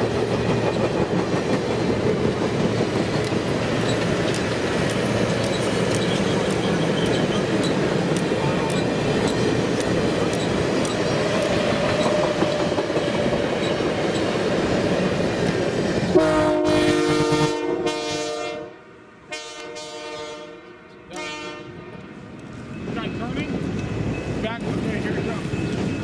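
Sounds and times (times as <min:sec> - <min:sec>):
train cars clattering on rails: 0:00.0 - 0:16.1, 0:22.0 - 0:26.0
train whistle blasts: 0:16.2 - 0:21.7.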